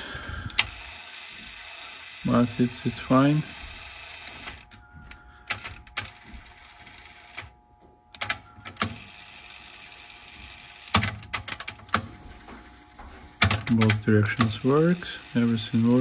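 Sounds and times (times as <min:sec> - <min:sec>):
tape motor whine: 0:00.0 - 0:16.0
mechanical clicks and clunks: 0:03.8 - 0:09.1, 0:10.5 - 0:14.9.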